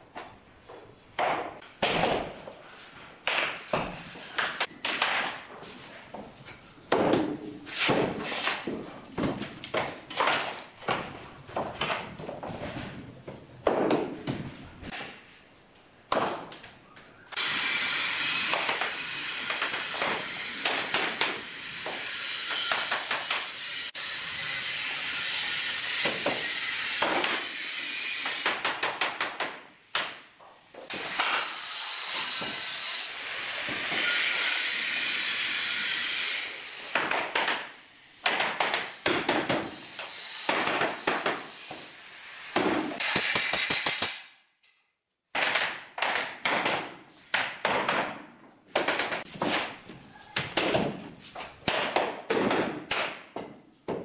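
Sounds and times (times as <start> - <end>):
hammer tapping flooring planks: 50.4 - 54.0.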